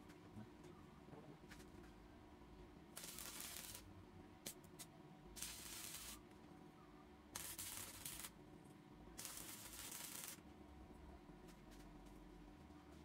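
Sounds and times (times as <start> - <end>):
welding arc crackle: 3.0 - 4.6, 5.4 - 6.2, 7.4 - 8.4, 9.2 - 10.4.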